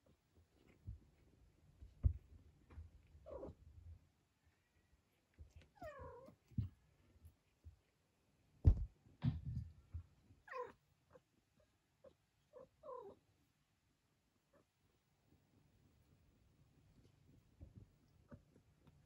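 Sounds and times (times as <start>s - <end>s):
soft thumps and fur rustles: 8.6s - 10.1s.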